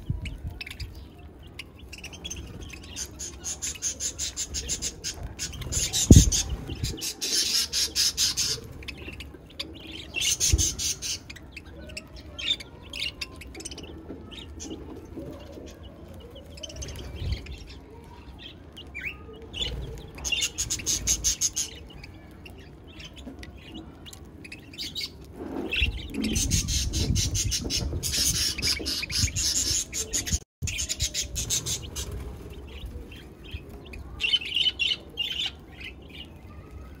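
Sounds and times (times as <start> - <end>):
budgerigars chirping: 0.5 - 13.9, 24.4 - 32.1.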